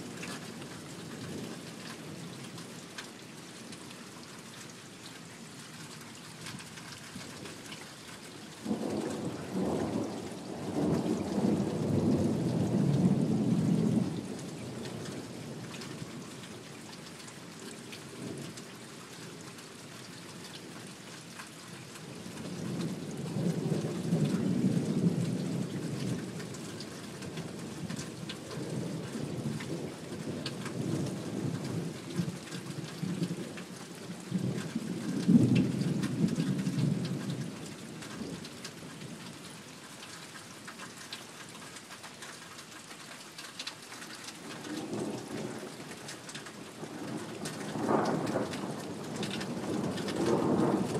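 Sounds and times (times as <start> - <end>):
steady rain: 0.0 - 50.9
rolling thunder: 8.7 - 14.2, 46.8 - 50.9.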